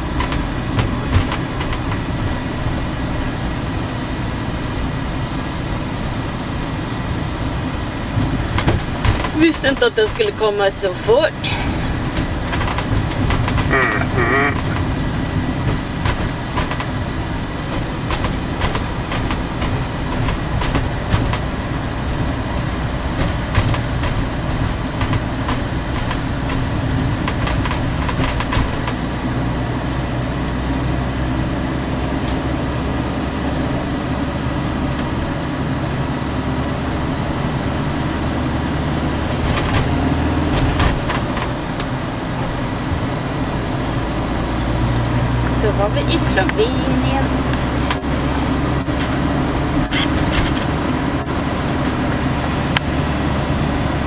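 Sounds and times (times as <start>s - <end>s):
engine and road rumble: 0.0s - 54.0s
clicks and rattles: 12.0s - 14.9s, 15.7s - 16.9s.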